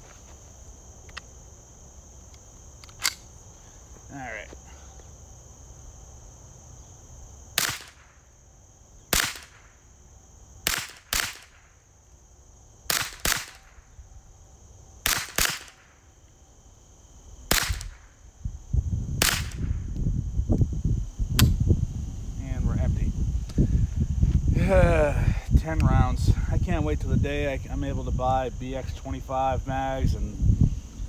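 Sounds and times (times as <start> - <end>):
rifle shots: 7.6 - 8.1, 9.1 - 9.6, 10.6 - 11.7, 12.9 - 13.8, 15.0 - 15.9, 17.5 - 18.1, 19.2 - 19.7.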